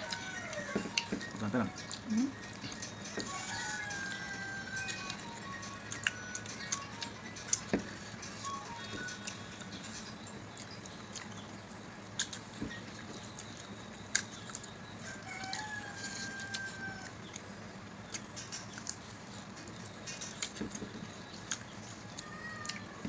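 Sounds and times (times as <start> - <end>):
rooster crowing: 3.1 - 5.4, 15.0 - 17.2.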